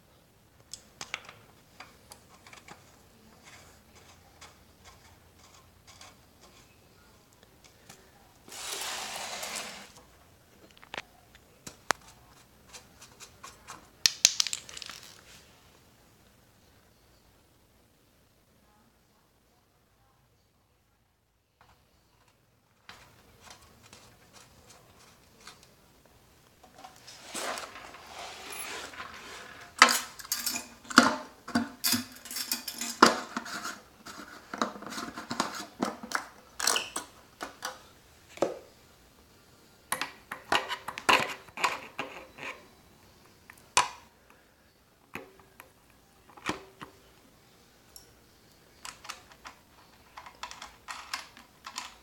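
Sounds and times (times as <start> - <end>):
parts scraping: 7.8 - 10.0, 26.6 - 37.8
plastic and metal parts clattering: 14.4 - 15.3, 26.6 - 37.8, 48.8 - 52.0.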